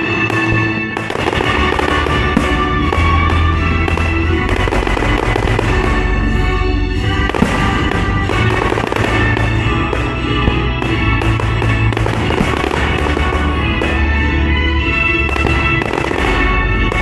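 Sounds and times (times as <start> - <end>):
classical music: 0.0 - 17.0
fireworks bursting and crackling: 0.0 - 17.0
sharp bang: 7.2 - 14.1.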